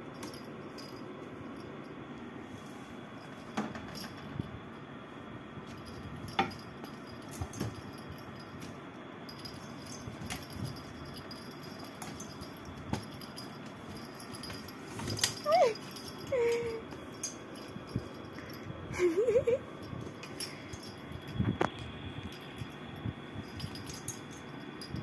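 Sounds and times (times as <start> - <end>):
cat tussling in fabric hammock: 5.6 - 16.3
collar bell jingling: 5.6 - 25.0.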